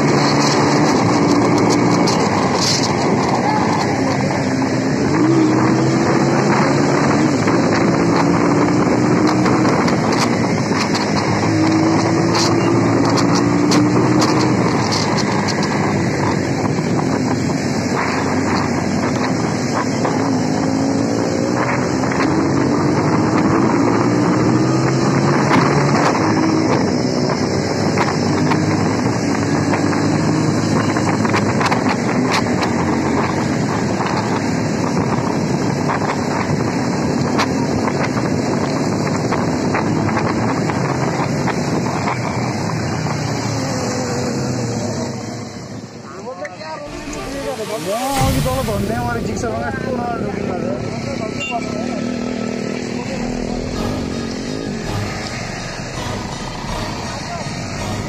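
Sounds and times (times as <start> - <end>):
motorcycle engine running: 51.0 - 58.0.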